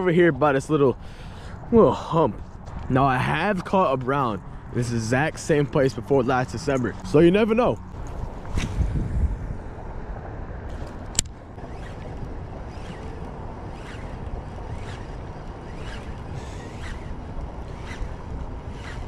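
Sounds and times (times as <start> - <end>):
low background rush: 0.0 - 19.0
sharp click: 10.7 - 12.2
fishing reel cranking: 10.7 - 19.0
faint reel ticking: 11.6 - 19.0.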